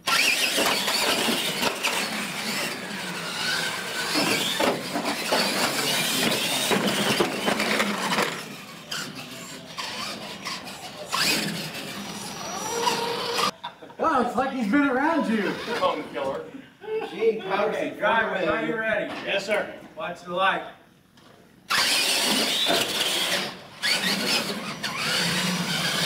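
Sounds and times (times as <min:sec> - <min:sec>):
toy truck motors whining: 0:00.0 - 0:13.6, 0:15.4 - 0:16.0, 0:21.7 - 0:26.0.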